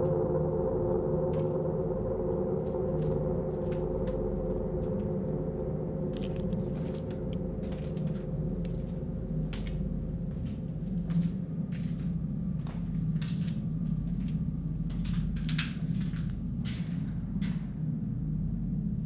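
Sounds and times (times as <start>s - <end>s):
low sustained drone: 0.0s - 19.0s
footsteps crunching on grit: 2.9s - 5.1s, 6.2s - 17.7s.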